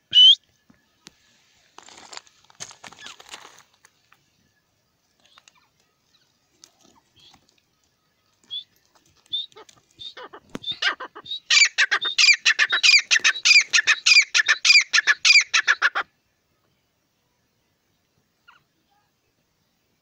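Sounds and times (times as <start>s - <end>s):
bird shrill repeated calls: 0.0s - 0.4s, 8.4s - 16.1s.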